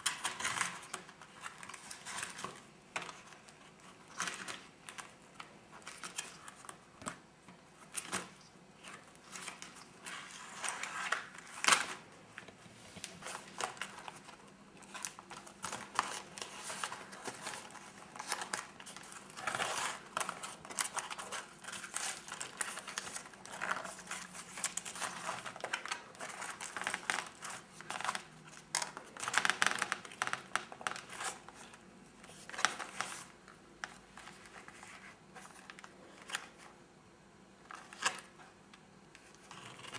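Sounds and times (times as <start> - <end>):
paper pages crinkling and rustling: 7.8 - 36.8, 37.6 - 38.4, 39.2 - 39.9.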